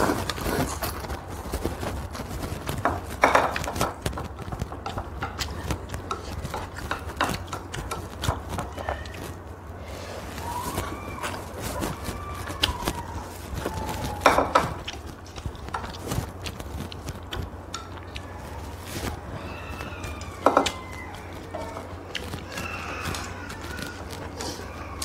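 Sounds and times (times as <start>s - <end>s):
chopsticks clicking on bowls: 2.7s - 9.4s, 11.2s - 25.0s.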